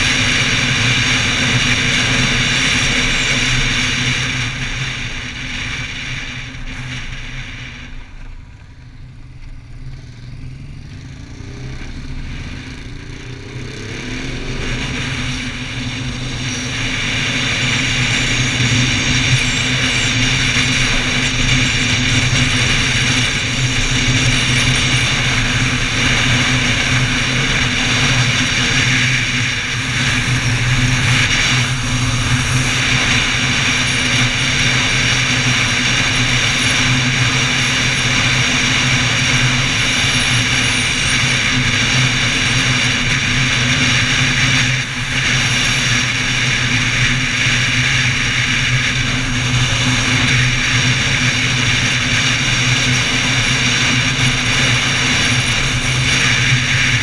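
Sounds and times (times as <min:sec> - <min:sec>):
motorcycle engine running: 0:00.0 - 0:57.0
wind rush and road noise: 0:00.0 - 0:57.0.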